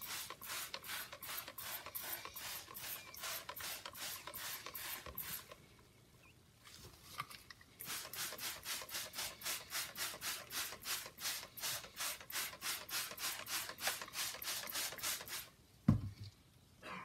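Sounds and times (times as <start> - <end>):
thump: 15.9 - 16.2.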